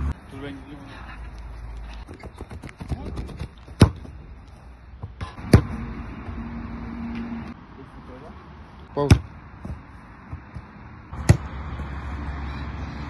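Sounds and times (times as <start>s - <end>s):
football kicked hard: 2.4s - 4.1s
quick light steps on artificial turf: 9.1s - 10.8s.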